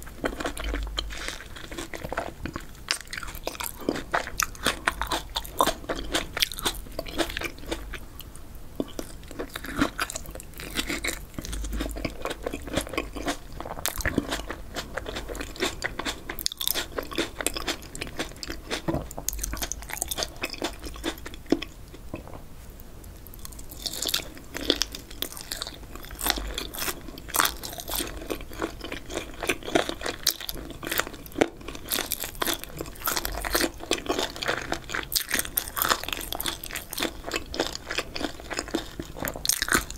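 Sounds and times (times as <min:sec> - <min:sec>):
wet chewing: 0:00.1 - 0:08.0, 0:08.8 - 0:22.2, 0:23.3 - 0:39.9
crunchy bites: 0:08.8 - 0:21.7, 0:23.3 - 0:39.9.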